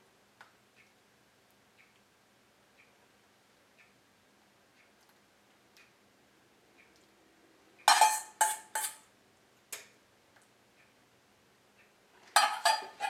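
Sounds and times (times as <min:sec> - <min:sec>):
metal spoon clanking on bowl: 0:07.9 - 0:09.0, 0:12.4 - 0:13.0.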